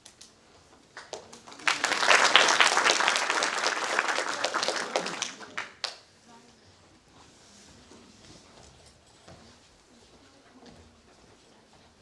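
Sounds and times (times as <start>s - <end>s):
audience applauding: 1.0s - 6.0s.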